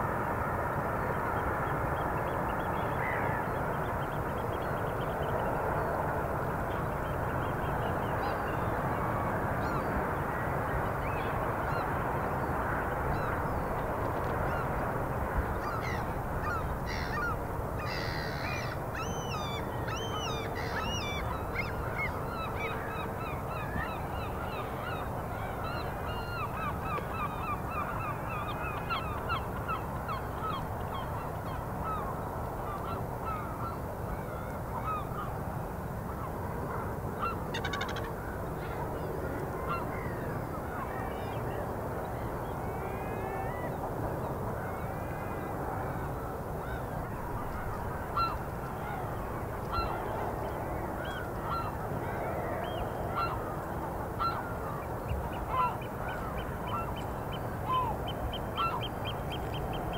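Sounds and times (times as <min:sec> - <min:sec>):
steady rushing background noise: 0:00.0 - 0:19.8.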